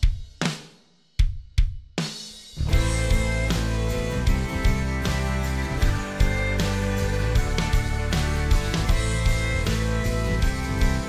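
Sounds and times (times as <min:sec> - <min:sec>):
band playing: 0:02.6 - 0:11.0.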